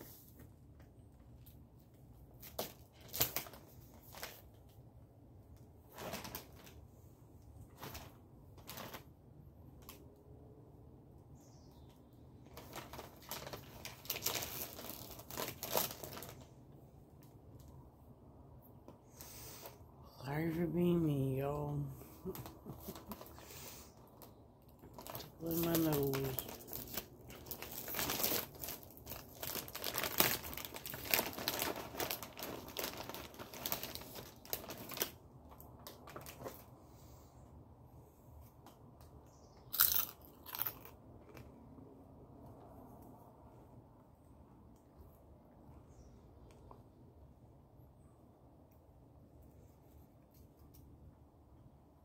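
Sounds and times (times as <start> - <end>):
crinkly material rustling: 0.0 - 10.2, 11.8 - 17.8, 20.9 - 36.9.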